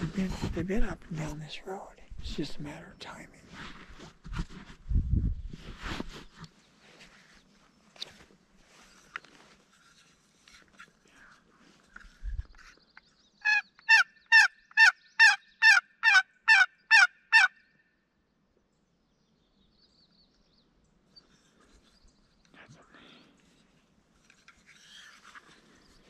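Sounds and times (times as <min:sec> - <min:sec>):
turkey yelps: 0:13.4 - 0:17.5.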